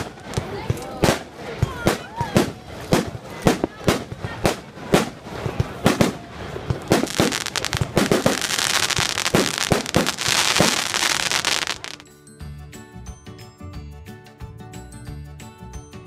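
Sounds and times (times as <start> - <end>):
fireworks bangs: 0.0 - 12.0
fireworks crackling hiss: 0.0 - 12.0.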